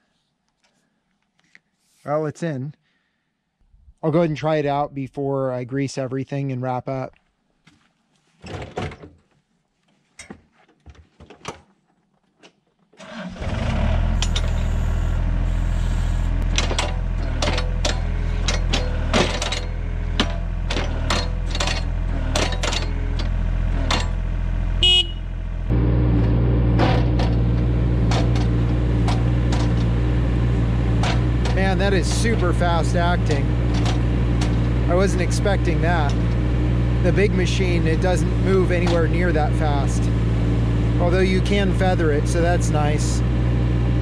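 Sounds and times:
diesel engine running: 13.2s - 44.0s
sharp clicks and knocks: 16.4s - 24.2s, 26.8s - 30.0s, 30.9s - 34.8s.

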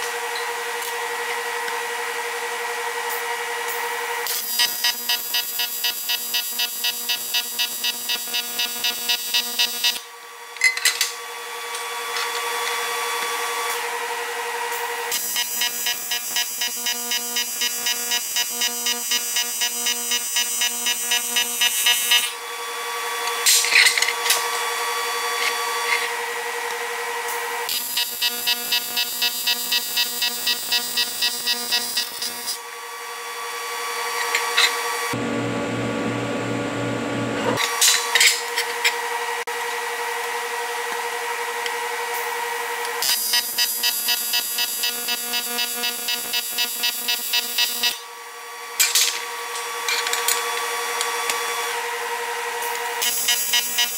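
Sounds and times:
welding arc buzzing: 4.2s - 10.1s, 15.1s - 22.4s, 27.7s - 32.6s, 43.0s - 48.0s, 53.0s - 53.9s.

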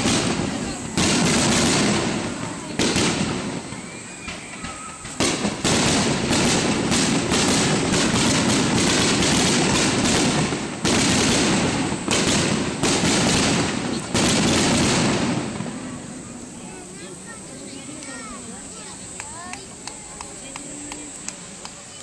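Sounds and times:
fireworks bursting: 0.0s - 22.0s.

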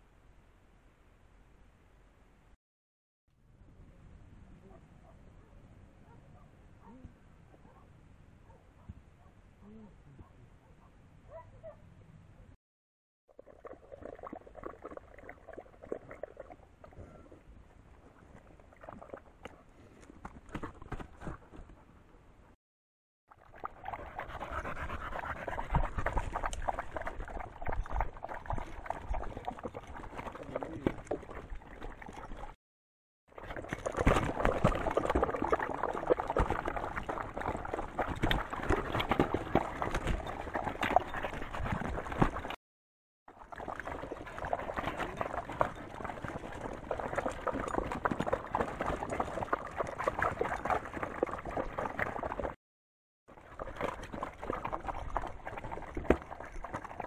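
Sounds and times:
dogs lapping water: 13.3s - 17.4s, 18.0s - 21.4s, 23.3s - 32.6s, 33.3s - 42.6s, 43.3s - 52.6s, 53.3s - 57.0s
dogs panting: 23.9s - 27.0s.

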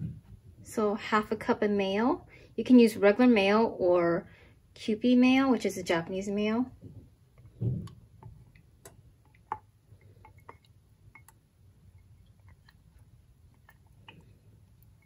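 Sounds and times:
light clicks and squishes: 6.8s - 15.0s
soft thud: 6.9s - 8.0s.

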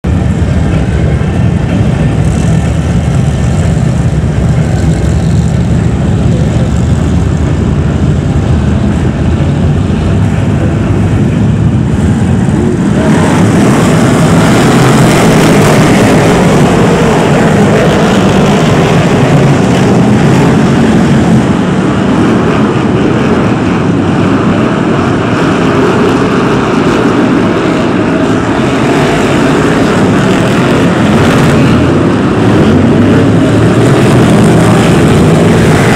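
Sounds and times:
racing car engines roaring: 0.0s - 35.9s.

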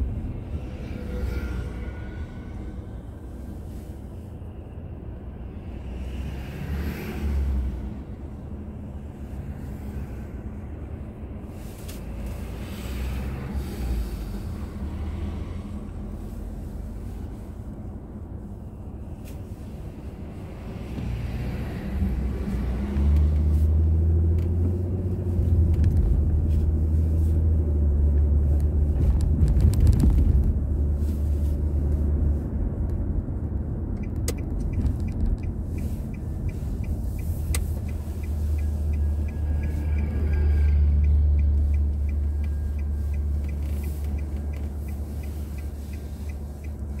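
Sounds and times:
car engine and road rumble: 0.0s - 47.0s
turn signal ticking: 30.8s - 47.0s.

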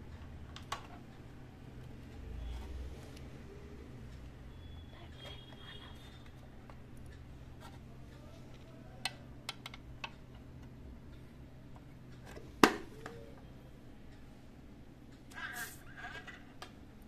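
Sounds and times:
plastic clicks: 8.5s - 10.7s.

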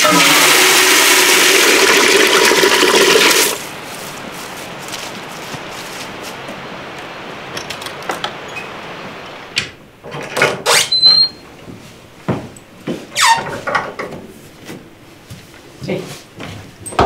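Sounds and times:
short high squeak: 10.7s - 11.4s.

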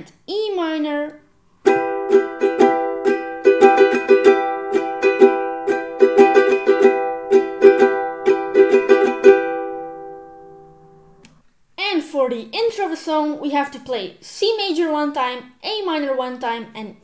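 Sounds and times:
ukulele strumming: 1.6s - 11.4s.

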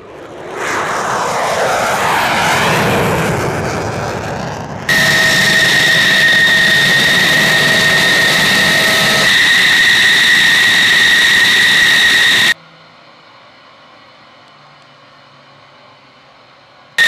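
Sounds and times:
jet engine whine and rumble: 0.0s - 17.0s.

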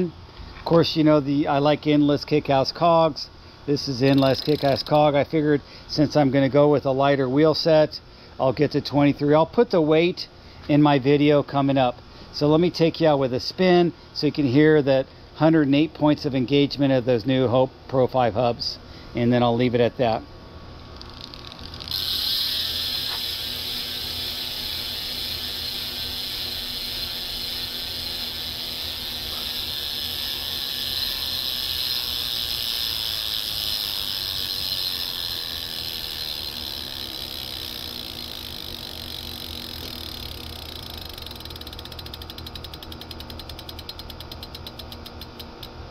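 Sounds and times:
bicycle hub freewheeling buzz: 3.8s - 5.4s, 20.8s - 45.8s.

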